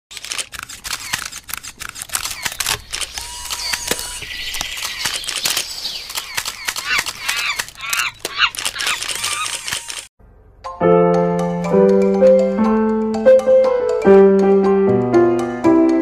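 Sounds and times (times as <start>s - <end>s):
sharp clicks and snaps: 0.1s - 10.1s
quick high chirping calls: 2.2s - 10.1s.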